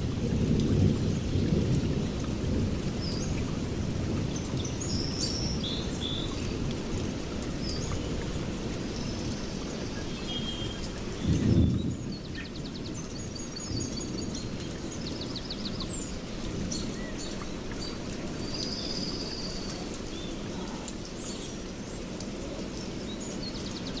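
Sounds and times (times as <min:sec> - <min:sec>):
birds chirping and trilling: 0:07.6 - 0:24.0.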